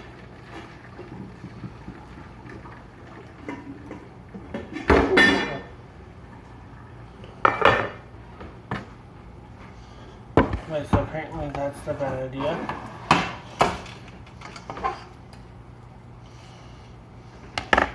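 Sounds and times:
metal pots and pans clattering: 4.6s - 5.7s.

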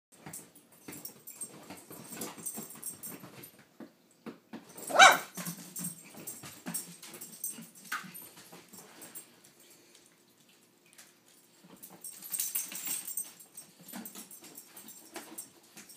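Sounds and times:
dog yelp: 4.9s - 5.4s.

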